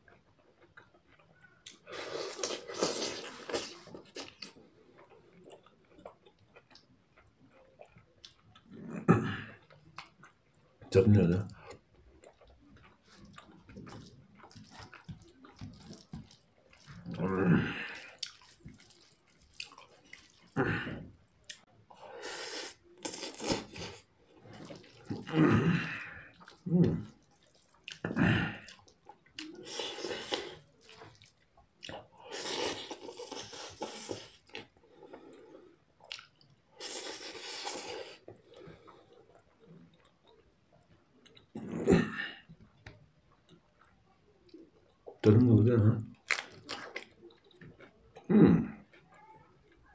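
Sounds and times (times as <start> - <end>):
chewing sounds: 0.0 - 10.9, 11.5 - 45.4, 46.0 - 49.9
person slurping noodles: 1.8 - 4.0, 22.0 - 27.1, 29.4 - 31.2, 32.2 - 34.4, 36.8 - 38.2.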